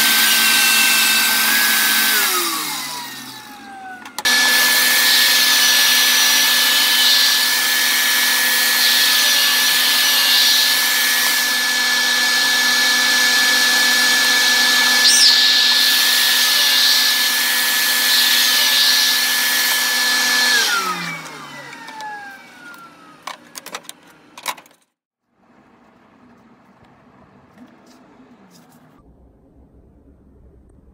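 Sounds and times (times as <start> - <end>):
saw winding down: 0.0 - 23.2
table saw whining: 0.0 - 23.3.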